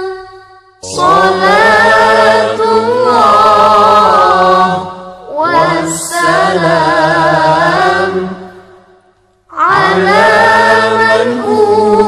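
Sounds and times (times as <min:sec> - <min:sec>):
person singing devotional song: 0:00.0 - 0:08.8, 0:09.5 - 0:12.0.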